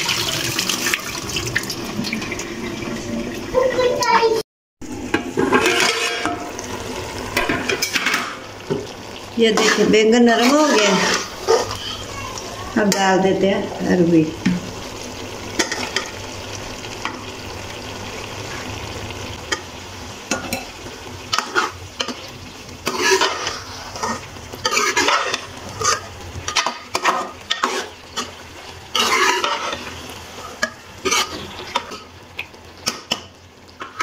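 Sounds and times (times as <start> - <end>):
vegetables sizzling in oil: 0.0 - 34.0
spoon scraping metal pot: 5.4 - 6.5, 9.5 - 11.8, 22.9 - 28.3, 28.9 - 32.0.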